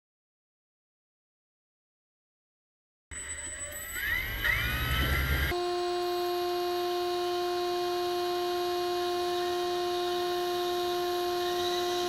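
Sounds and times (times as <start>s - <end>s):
steady pitched hum: 4.0s - 12.0s.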